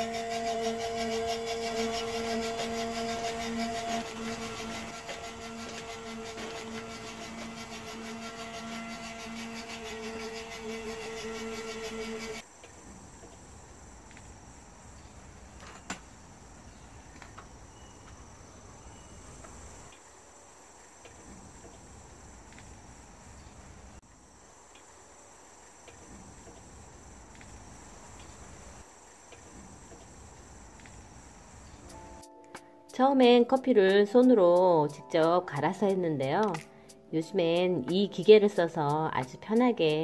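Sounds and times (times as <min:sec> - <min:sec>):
crickets chirping: 0:04.2 - 0:32.8.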